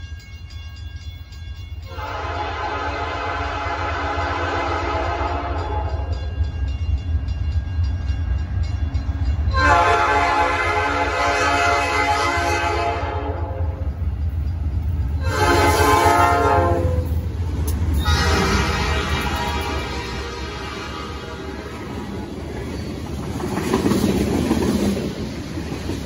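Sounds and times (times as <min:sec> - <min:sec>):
train rumble: 0:00.0 - 0:26.0
locomotive air horn: 0:01.9 - 0:06.0, 0:09.5 - 0:13.7, 0:15.2 - 0:17.2, 0:18.0 - 0:21.7.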